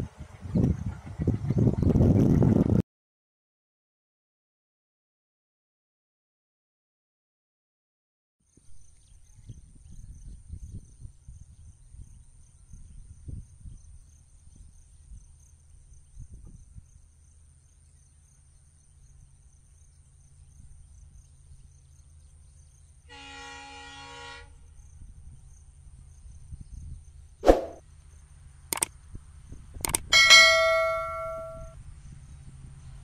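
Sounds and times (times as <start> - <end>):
locomotive horn blast: 23.1 - 24.7.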